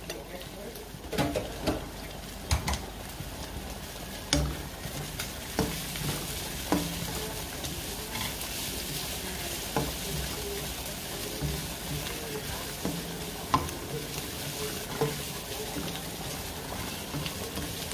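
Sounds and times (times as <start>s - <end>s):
meat and onions sizzling: 0.0s - 17.9s
spatula knocking pan: 4.3s - 8.4s, 9.6s - 17.9s.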